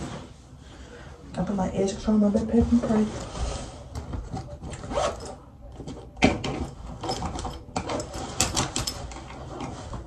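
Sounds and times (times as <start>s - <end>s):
backpack fabric rustling: 3.0s - 5.4s.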